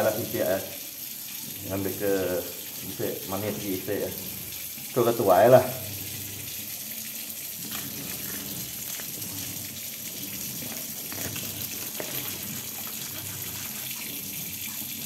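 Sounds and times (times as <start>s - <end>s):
cleaver scraping fish scales: 7.6s - 14.2s.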